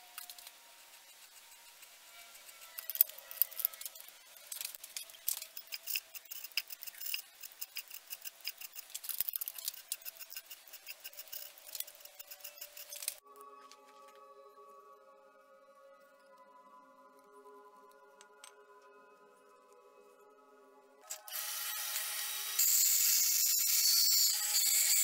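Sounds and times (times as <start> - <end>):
music with held tones: 13.2 - 21.3.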